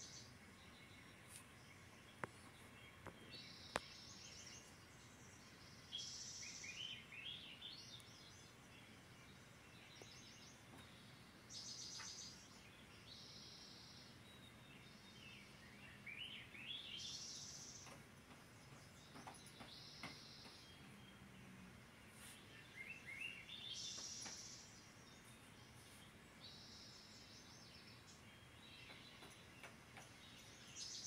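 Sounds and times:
faint birdsong from speaker: 0.0s - 31.0s.

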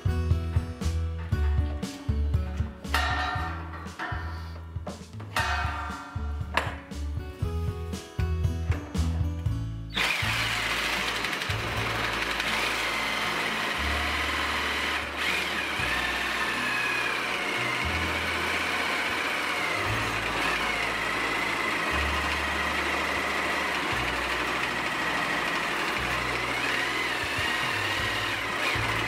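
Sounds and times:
reciprocating saw cutting metal: 9.9s - 29.0s.

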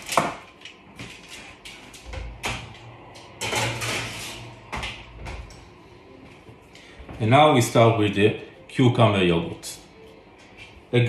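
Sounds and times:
metal tray clanking: 3.4s - 4.5s
tray scraping on oven rack: 3.4s - 4.7s.

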